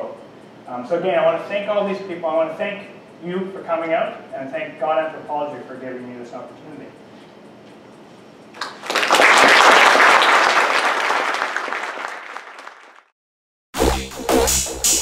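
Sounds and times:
audience applauding: 0:08.6 - 0:13.1.

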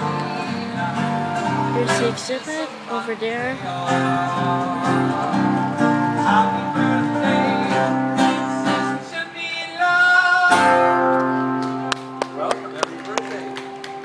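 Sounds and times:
acoustic guitar music: 0:00.0 - 0:14.0.

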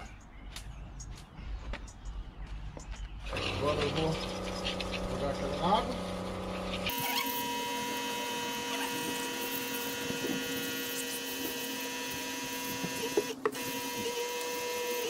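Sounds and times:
pressure washer pump whining: 0:03.2 - 0:15.0
water spraying: 0:03.3 - 0:15.0.

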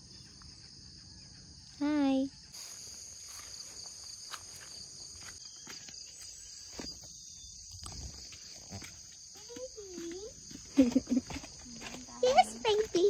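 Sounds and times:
insects trilling: 0:00.0 - 0:13.0
footsteps on stone steps: 0:04.2 - 0:07.2, 0:07.8 - 0:13.0.

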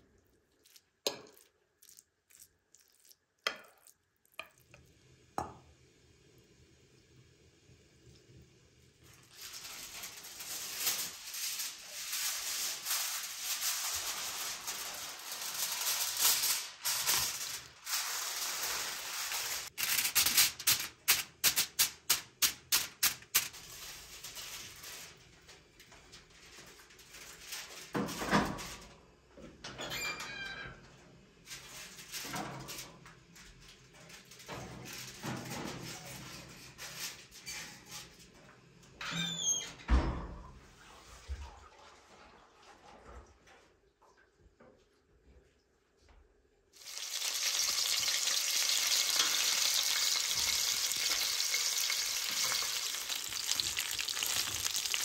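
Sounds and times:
aluminium foil crinkling: 0:09.0 - 0:28.8, 0:46.8 - 0:55.0.

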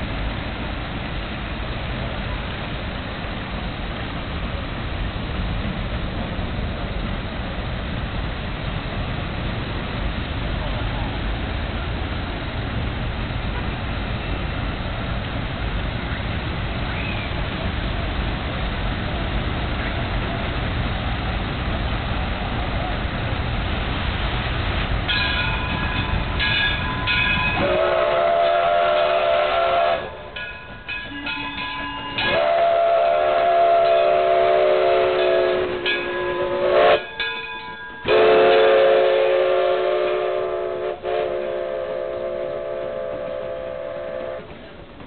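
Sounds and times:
steam locomotive passing: 0:00.0 - 0:45.0
steam whistle blasts: 0:27.1 - 0:30.4, 0:31.2 - 0:37.4, 0:38.0 - 0:44.5.

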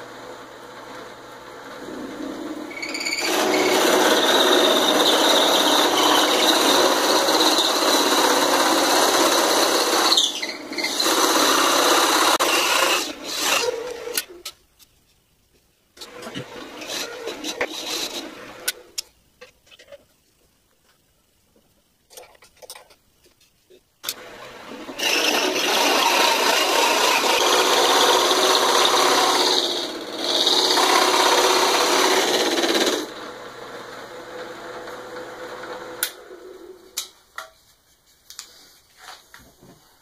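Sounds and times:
drill press cutting wood: 0:02.7 - 0:14.3, 0:16.0 - 0:18.8, 0:24.1 - 0:36.4.

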